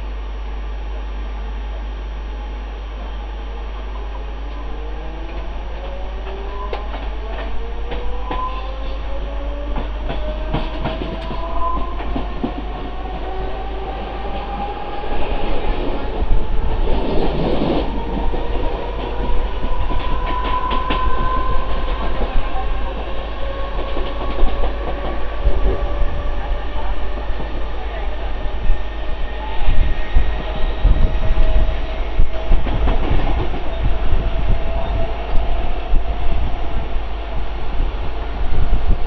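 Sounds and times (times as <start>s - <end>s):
electric train whine rising: 0.0s - 39.0s.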